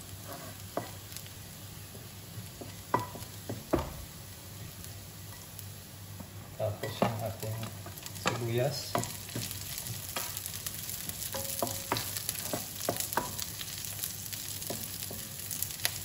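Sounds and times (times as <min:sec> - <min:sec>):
garlic sizzling in hot oil: 0:00.0 - 0:16.0
wooden spatula scraping pan: 0:00.2 - 0:01.0, 0:11.3 - 0:13.4
spatula knocking against pan: 0:11.3 - 0:13.4.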